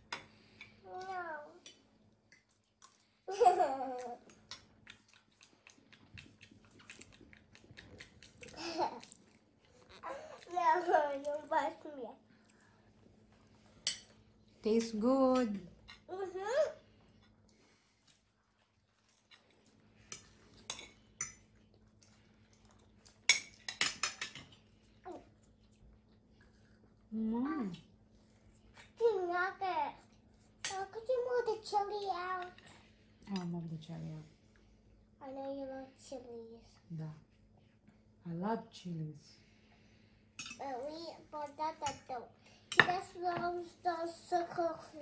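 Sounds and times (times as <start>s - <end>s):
chewing: 2.3s - 3.1s, 4.0s - 10.6s, 17.2s - 20.7s, 21.4s - 23.7s
cutlery clicking on plates: 23.2s - 24.6s.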